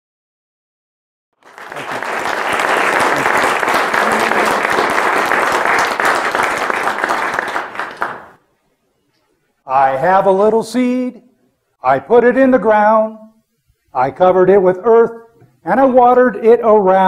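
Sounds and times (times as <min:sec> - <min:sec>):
audience clapping: 0:01.4 - 0:08.5.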